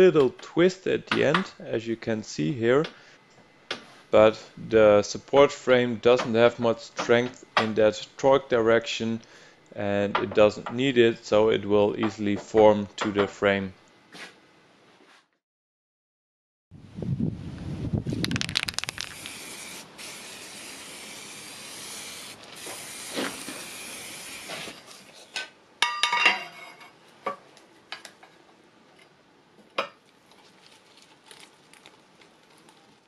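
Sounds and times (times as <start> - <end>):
small ticks and scrapes: 18.1 - 19.5, 30.2 - 33.0
spray paint can hissing: 18.1 - 24.7.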